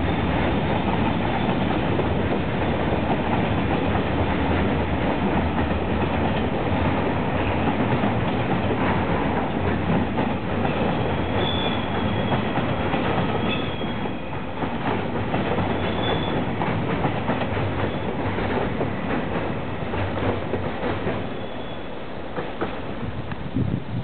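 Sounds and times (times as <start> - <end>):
train wheels clicking over rail joints: 0.0 - 23.5
high wheel squeals: 10.7 - 14.5, 15.7 - 16.5, 17.8 - 18.2, 21.3 - 22.0.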